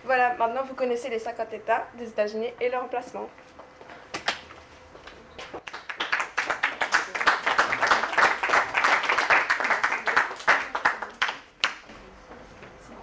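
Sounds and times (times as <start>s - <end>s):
audience applauding: 5.6s - 11.8s.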